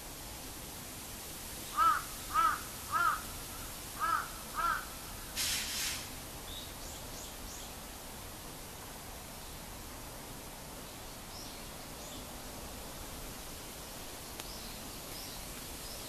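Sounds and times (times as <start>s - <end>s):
rustling hiss: 0.0s - 16.0s
crow cawing: 1.7s - 5.3s.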